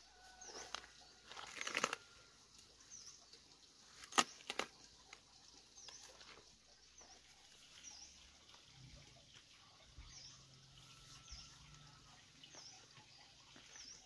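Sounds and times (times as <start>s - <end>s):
stem snapping: 4.0s - 4.7s.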